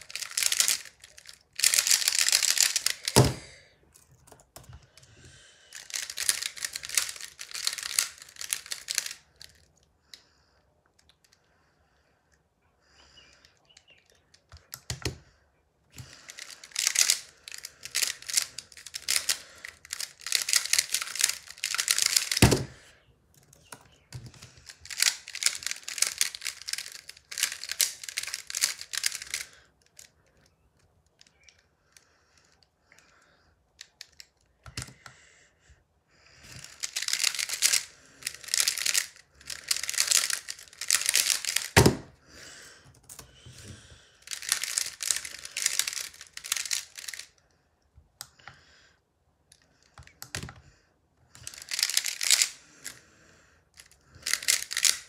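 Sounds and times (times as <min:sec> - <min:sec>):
plastic puzzle clicking and rattling: 0:00.0 - 0:09.8, 0:15.9 - 0:33.1, 0:33.7 - 0:35.2, 0:36.4 - 0:42.1, 0:42.9 - 0:47.4, 0:49.5 - 0:50.6, 0:51.3 - 0:53.0, 0:53.7 - 0:55.0.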